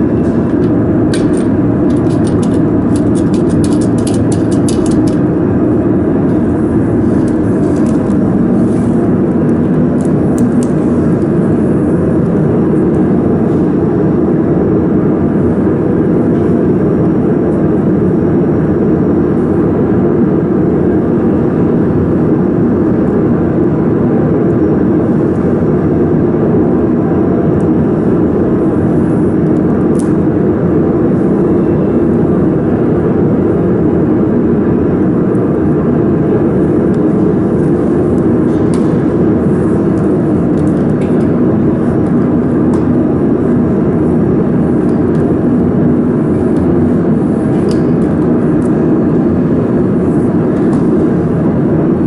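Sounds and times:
cooling fans droning: 0:00.0 - 0:52.0
cable connectors clicking: 0:00.6 - 0:05.2.

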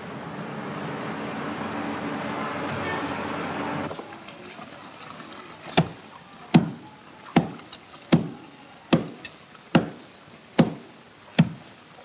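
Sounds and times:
paddle beating wet laundry: 0:03.9 - 0:12.0.

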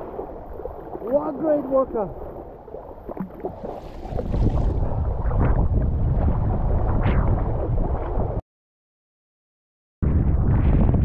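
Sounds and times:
water slapping against boat: 0:00.0 - 0:08.2
wind buffeting microphone: 0:03.4 - 0:08.4, 0:10.0 - 0:11.0.

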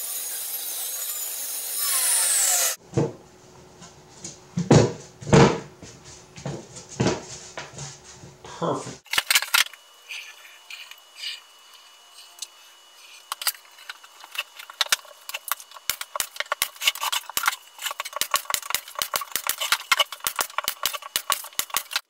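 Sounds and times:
nail gun firing: 0:17.4 - 0:22.0.

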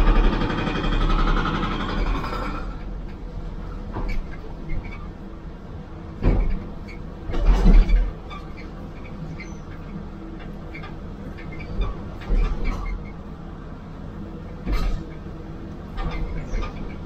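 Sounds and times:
diesel engine running: 0:00.0 - 0:07.4.

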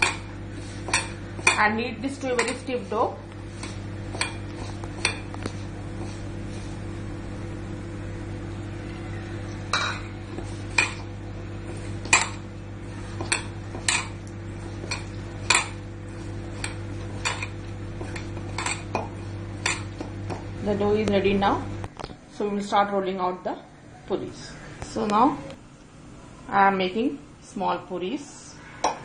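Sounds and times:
steady low hum: 0:00.0 - 0:29.0
clinks against steel bowl: 0:02.3 - 0:02.7, 0:09.7 - 0:11.0.

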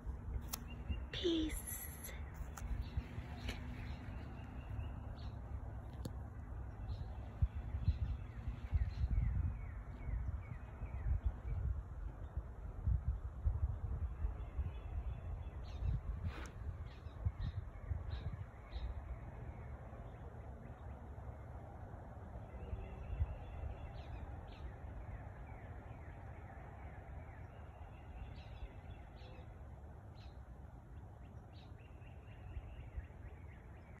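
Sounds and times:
faint bird warbling song: 0:00.0 - 0:21.6, 0:22.3 - 0:34.0
steady low rumble: 0:00.0 - 0:25.1.

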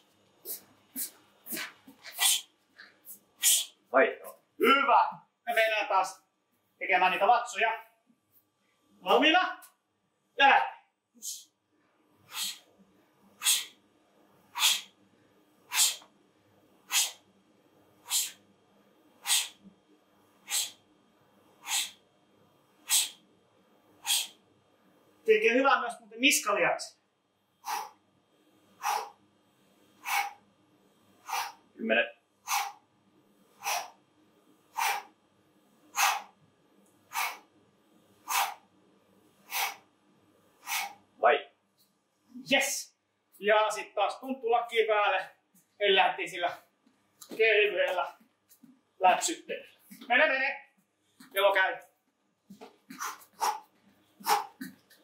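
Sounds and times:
sharp hissing breaths out: 0:00.4 - 0:02.5, 0:03.1 - 0:03.8, 0:12.3 - 0:12.7, 0:13.4 - 0:13.8, 0:14.5 - 0:15.0, 0:15.7 - 0:16.1, 0:16.9 - 0:17.2, 0:18.0 - 0:18.4, 0:19.2 - 0:19.7, 0:20.4 - 0:20.8, 0:21.6 - 0:22.0, 0:22.8 - 0:23.2, 0:24.0 - 0:24.4, 0:27.6 - 0:28.0, 0:28.7 - 0:29.2, 0:29.8 - 0:30.4, 0:31.2 - 0:31.7, 0:32.4 - 0:32.8, 0:33.5 - 0:34.0, 0:34.7 - 0:35.2, 0:35.9 - 0:36.4, 0:37.1 - 0:37.5, 0:38.2 - 0:38.7, 0:39.3 - 0:39.9, 0:40.6 - 0:41.1, 0:52.9 - 0:54.7
person exhaling forcefully: 0:00.5 - 0:02.5, 0:12.3 - 0:12.6, 0:13.4 - 0:13.7, 0:14.6 - 0:14.9, 0:15.7 - 0:16.0, 0:16.9 - 0:17.2, 0:18.1 - 0:18.4, 0:19.2 - 0:19.6, 0:20.4 - 0:20.8, 0:21.6 - 0:22.0, 0:22.9 - 0:23.2, 0:24.0 - 0:24.4, 0:27.6 - 0:28.0, 0:28.8 - 0:29.2, 0:30.0 - 0:30.4, 0:31.2 - 0:31.6, 0:32.5 - 0:32.8, 0:33.6 - 0:34.0, 0:34.8 - 0:35.1, 0:36.0 - 0:36.3, 0:37.1 - 0:37.4, 0:38.2 - 0:38.6, 0:39.5 - 0:39.8, 0:40.6 - 0:41.0, 0:52.9 - 0:54.7.

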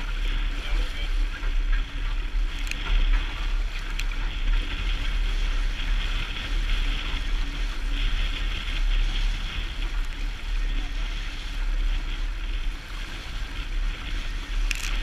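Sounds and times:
water rushing along hull: 0:00.0 - 0:15.0
wind buffeting microphone: 0:00.0 - 0:15.0
small clicks: 0:02.5 - 0:03.0, 0:03.8 - 0:04.2, 0:14.6 - 0:15.0.

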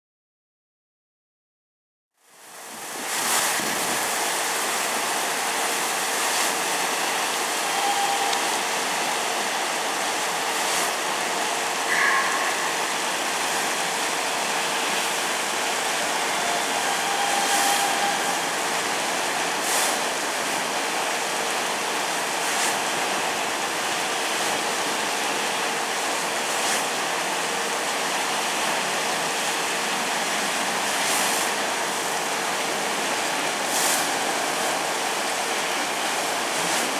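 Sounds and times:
constant machine hum: 0:02.2 - 0:36.9
water spray rushing: 0:30.3 - 0:36.9.

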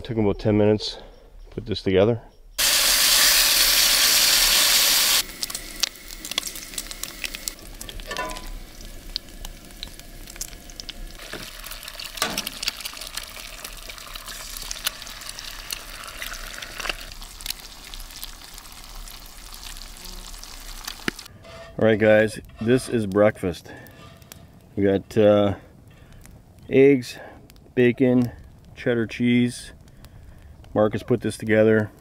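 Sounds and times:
loud hissing burst: 0:02.6 - 0:07.6
bacon and eggs sizzling: 0:02.6 - 0:21.6.

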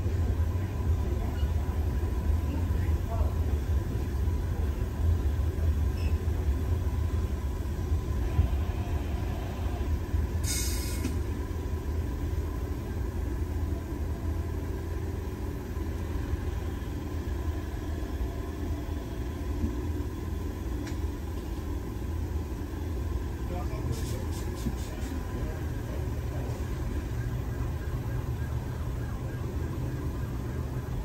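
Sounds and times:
subway train low rumble: 0:00.0 - 0:31.0
short hiss: 0:10.4 - 0:11.2.

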